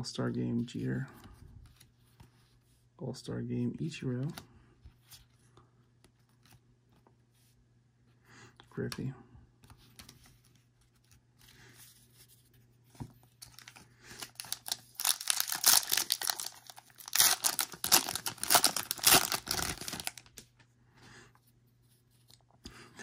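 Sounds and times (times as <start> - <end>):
foil wrapper tearing and crinkling: 13.5 - 20.4
crackling tears of foil: 14.2 - 20.3.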